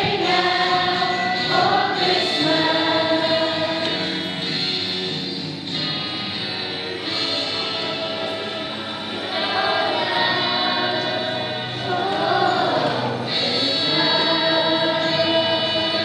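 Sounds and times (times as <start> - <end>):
choir singing long notes: 0.0 - 4.3, 7.9 - 16.0.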